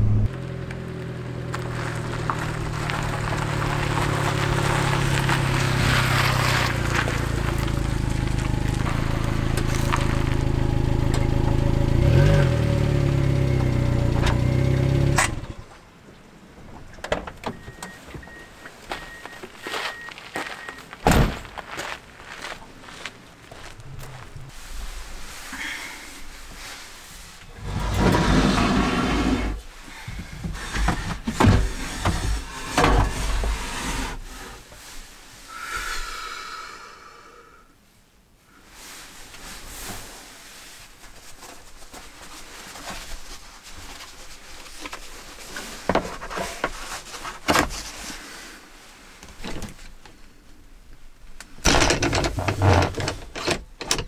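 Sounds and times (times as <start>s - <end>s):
rustling: 0.3s - 11.5s, 18.0s - 35.5s, 38.6s - 50.6s.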